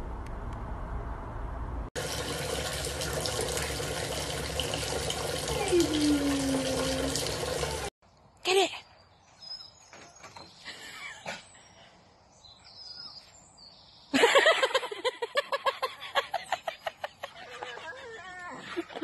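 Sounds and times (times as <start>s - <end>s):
faint birds chirping: 8.0s - 14.5s.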